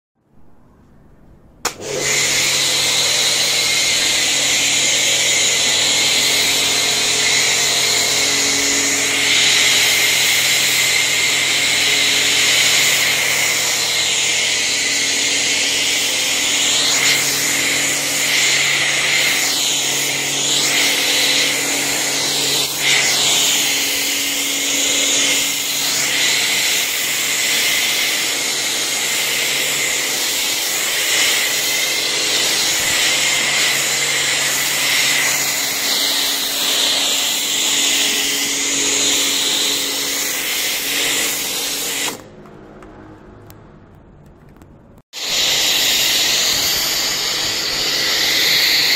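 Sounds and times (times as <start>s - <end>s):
foam spraying hiss: 11.6s - 42.2s, 45.2s - 48.9s.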